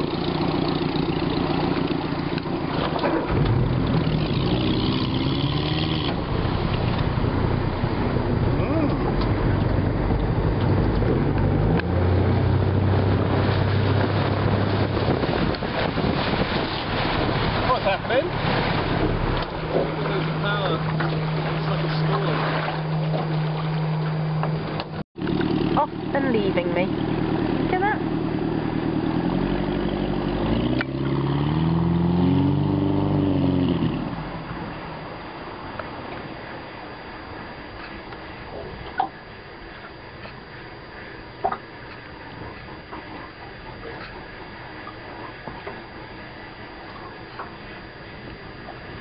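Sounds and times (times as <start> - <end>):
motorboat engine running: 0.0 - 49.0
water wash: 0.0 - 49.0
wind: 0.0 - 49.0.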